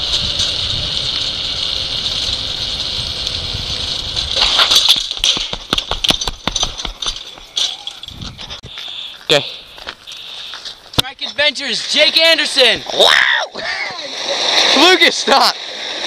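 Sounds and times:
wind on camera: 0:00.0 - 0:04.7, 0:07.9 - 0:08.7
tyres hissing on asphalt: 0:00.0 - 0:05.7, 0:08.5 - 0:16.0
clicks and rattles: 0:04.3 - 0:08.6.

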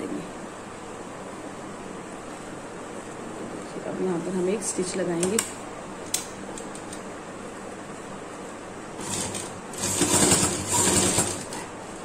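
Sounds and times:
sewing machine stitching: 0:09.0 - 0:11.7.

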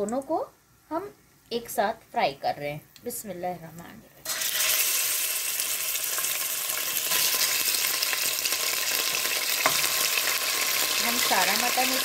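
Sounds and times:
meat sizzling in hot oil: 0:04.3 - 0:12.0.

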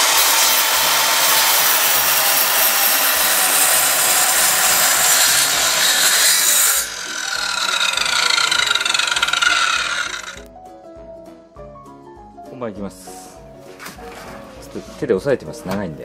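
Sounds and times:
miter saw cutting wood: 0:00.0 - 0:10.5
saw blade winding down: 0:00.0 - 0:10.5.

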